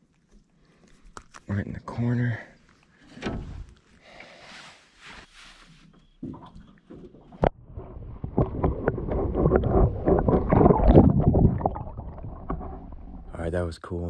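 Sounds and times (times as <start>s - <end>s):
underwater splashing and bubbling: 6.2s - 13.4s.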